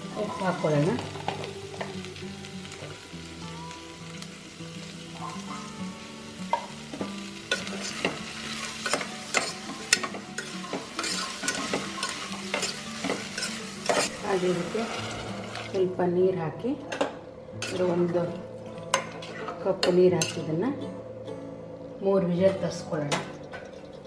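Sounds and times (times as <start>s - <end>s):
vegetables sizzling in oil: 0.0s - 16.0s.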